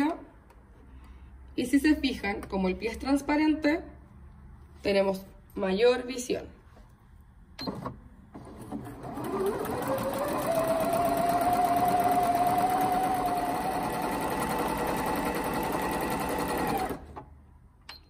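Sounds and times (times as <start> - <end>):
sewing machine stitching: 8.3 - 17.3.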